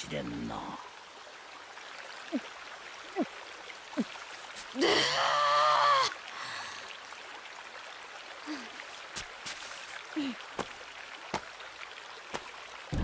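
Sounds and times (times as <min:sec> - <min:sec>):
flowing water: 0:00.0 - 0:13.0
woman moaning sigh: 0:04.8 - 0:06.9, 0:08.5 - 0:08.8, 0:10.2 - 0:10.4.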